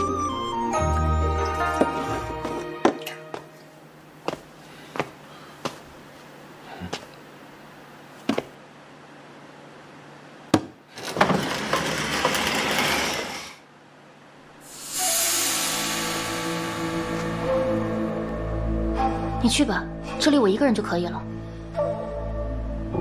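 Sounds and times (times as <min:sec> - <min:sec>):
music: 0:00.0 - 0:03.8, 0:14.8 - 0:23.0
footsteps on wooden floor: 0:01.7 - 0:06.0, 0:08.2 - 0:08.6
floor hatch grinding open: 0:10.9 - 0:13.6.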